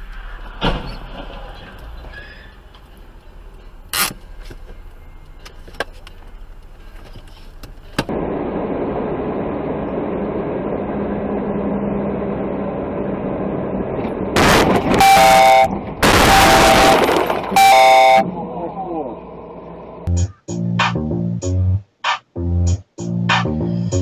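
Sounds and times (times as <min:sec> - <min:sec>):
engine and road rumble: 0:00.0 - 0:24.0
loud sudden noise: 0:08.1 - 0:18.6.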